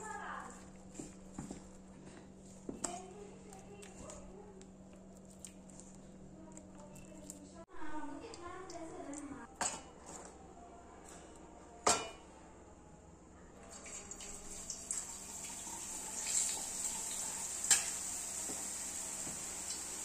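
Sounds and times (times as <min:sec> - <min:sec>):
batter sizzling in hot oil: 0:13.8 - 0:20.0.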